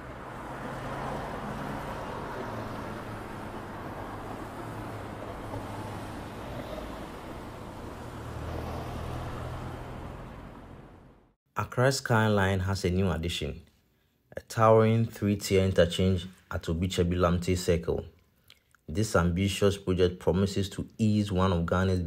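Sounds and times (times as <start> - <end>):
passing vehicles: 0.0 - 11.4.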